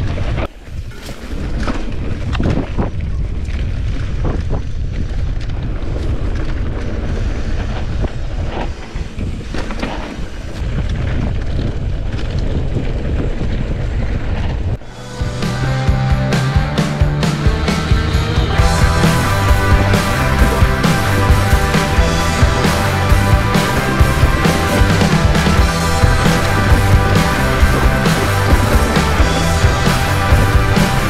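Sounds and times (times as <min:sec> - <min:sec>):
wind buffeting microphone: 0:00.0 - 0:15.0
low rolling rumble: 0:10.4 - 0:31.0.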